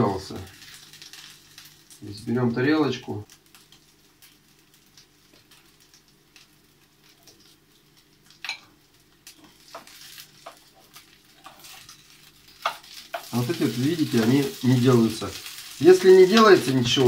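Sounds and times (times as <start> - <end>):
patties sizzling in oil: 0.0 - 17.0
spatula and fork scraping pan: 9.4 - 13.4.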